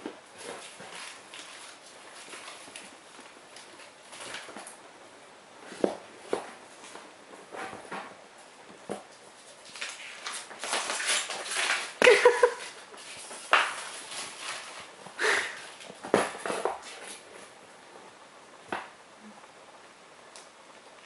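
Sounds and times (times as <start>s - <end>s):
newspaper rustling and crinkling: 0.1s - 4.8s, 8.7s - 17.5s.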